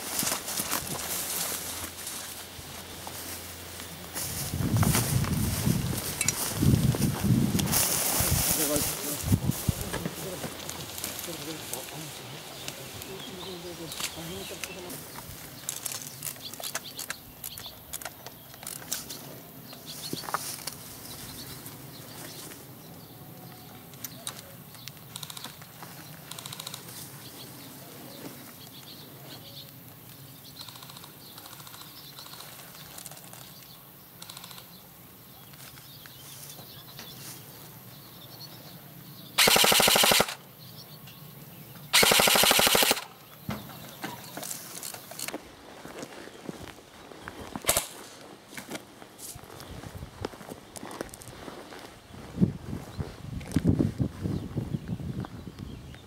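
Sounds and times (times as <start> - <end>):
small clicks and rustles: 30.1 - 34.8
airsoft rifle full-auto bursts: 39.4 - 40.4, 41.9 - 43.2.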